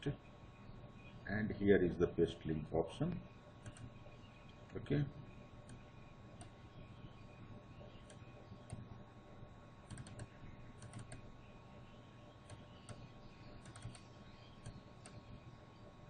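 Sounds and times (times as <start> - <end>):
low steady hum: 0.0 - 16.0
computer mouse clicks: 3.6 - 4.0, 5.6 - 6.6, 9.9 - 11.3, 12.4 - 15.4.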